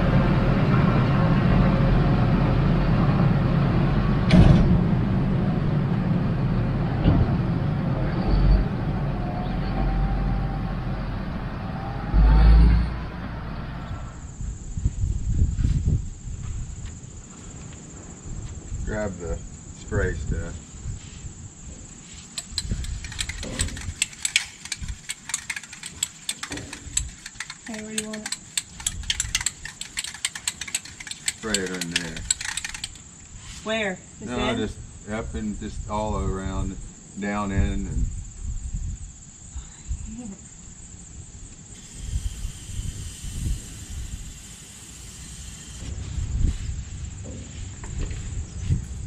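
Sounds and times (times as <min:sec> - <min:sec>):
insects chirping: 0:08.0 - 0:49.0
spray can ball rattling: 0:22.3 - 0:33.1
tractor diesel engine running: 0:22.4 - 0:33.1.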